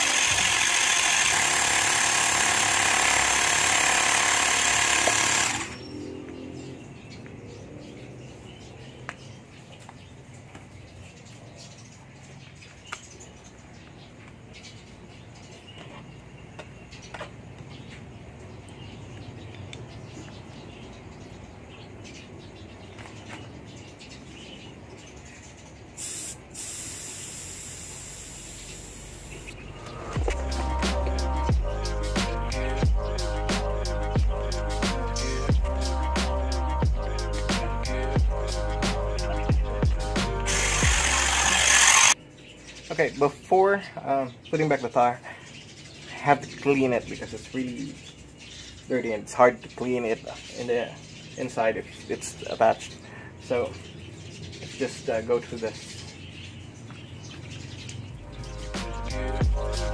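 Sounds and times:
tool clicks: 0.0s - 5.8s, 40.4s - 42.2s
tire inflator buzzing: 0.0s - 6.0s, 26.0s - 31.3s, 39.9s - 42.2s
air hissing from tyre valve: 26.0s - 29.5s.

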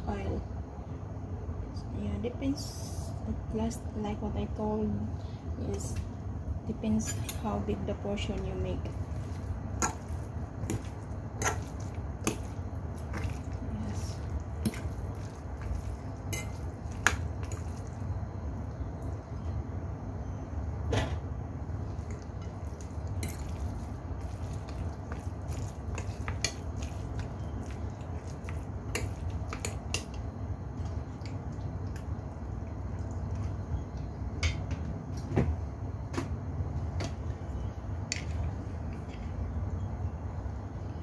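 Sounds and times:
low steady hum: 0.0s - 41.0s
meat squishing: 8.9s - 18.2s, 21.9s - 30.2s.

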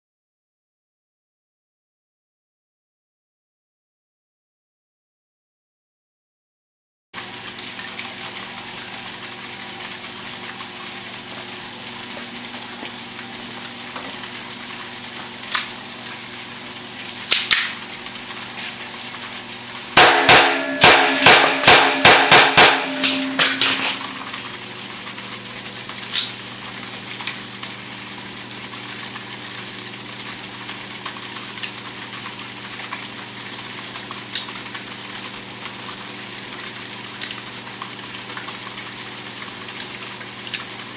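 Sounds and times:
steady background hum: 7.5s - 33.3s.

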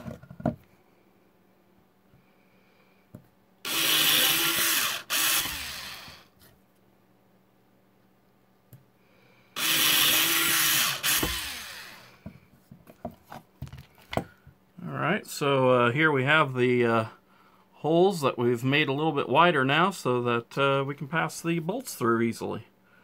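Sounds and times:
cordless drill drilling metal: 3.6s - 6.3s, 9.6s - 12.2s.

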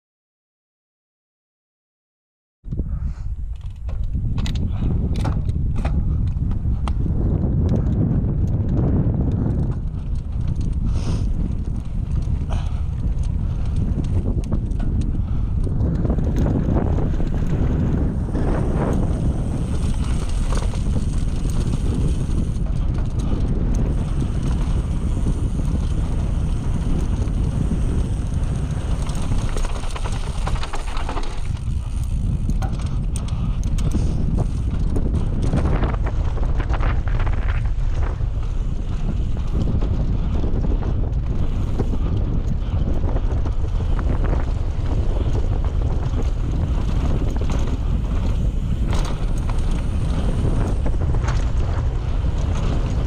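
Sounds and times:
bike clicks and rattles: 2.7s - 53.0s
wind buffeting microphone: 2.7s - 53.0s
tyres rumbling on dirt: 15.8s - 33.2s, 33.9s - 53.0s.

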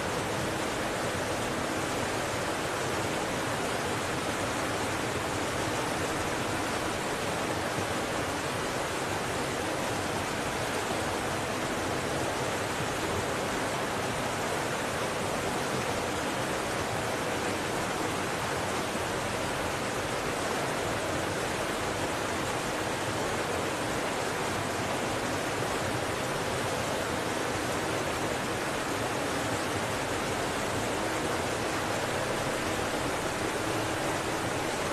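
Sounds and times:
waterfall rushing: 0.0s - 34.9s.

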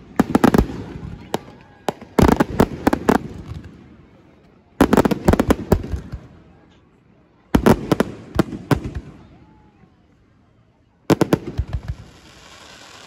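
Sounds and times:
fireworks exploding: 0.0s - 4.0s, 4.8s - 6.4s, 7.5s - 9.6s, 11.1s - 13.0s.

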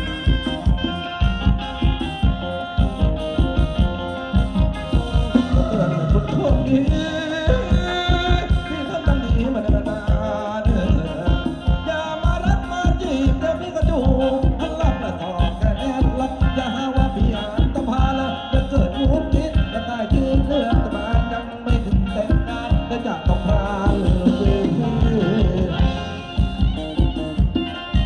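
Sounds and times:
drum kit beat: 0.0s - 28.0s
live band music: 0.0s - 28.0s
person singing: 0.0s - 28.0s.

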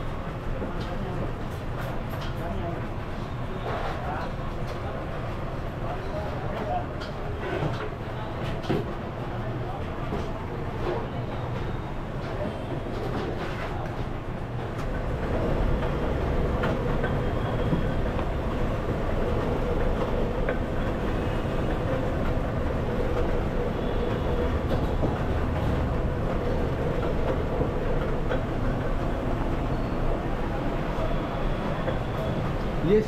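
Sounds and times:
roller machine rumbling: 14.6s - 32.6s.

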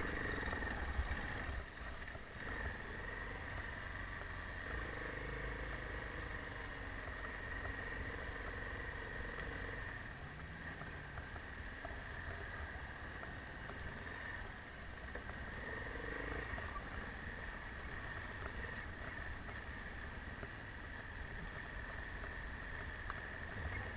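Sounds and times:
motorcycle engine at low revs: 0.0s - 23.9s
steady high whine: 0.0s - 23.9s.

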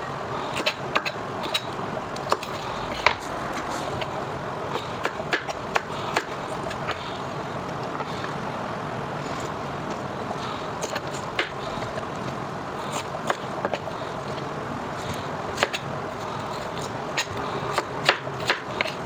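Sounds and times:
steady background hiss: 0.0s - 19.0s
knife chopping on cutting board: 4.8s - 7.0s, 17.2s - 19.0s.

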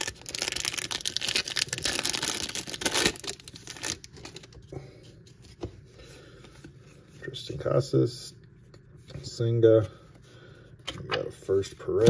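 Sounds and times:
wrapper tearing and crinkling: 0.0s - 4.5s.

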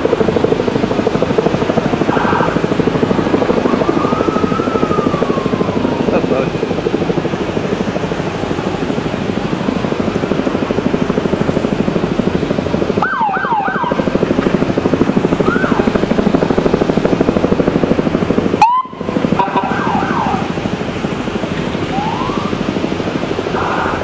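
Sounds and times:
rapidly pulsing drone: 0.0s - 24.0s
siren rising whoop: 2.0s - 6.6s, 13.0s - 14.2s, 15.3s - 16.5s, 18.6s - 20.6s, 21.8s - 22.8s
police siren yelping chirps: 2.1s - 6.4s, 13.0s - 14.0s, 15.3s - 16.2s, 18.6s - 20.6s, 21.9s - 22.6s.

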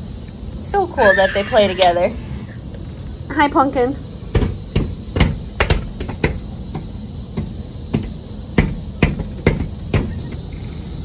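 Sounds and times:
hands slapping glass door: 4.3s - 10.4s.

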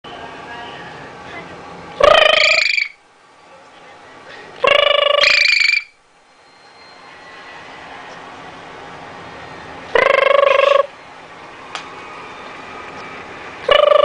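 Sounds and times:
parrot calling loudly: 2.0s - 3.0s, 4.6s - 6.0s, 9.9s - 10.9s, 13.6s - 14.0s.

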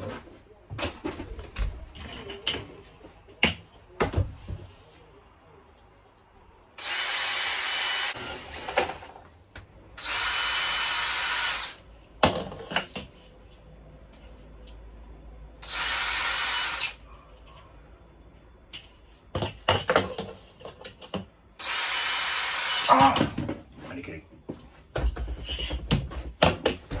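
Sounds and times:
cordless drill drilling into plastic: 6.8s - 9.0s, 10.0s - 11.8s, 15.6s - 17.0s, 21.6s - 22.9s.

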